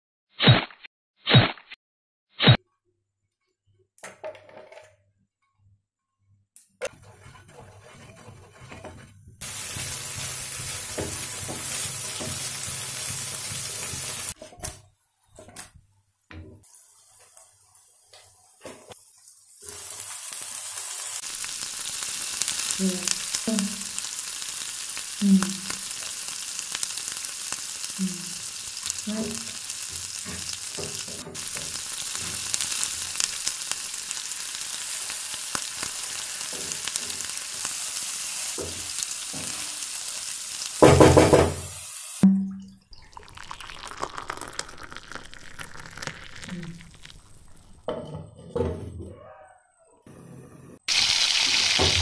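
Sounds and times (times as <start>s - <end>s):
spoon scraping and tapping pan: 6.8s - 14.4s
food sizzling in oil: 9.4s - 14.4s, 16.6s - 42.2s, 42.9s - 47.9s, 50.9s - 52.0s
gravy bubbling: 42.8s - 47.9s.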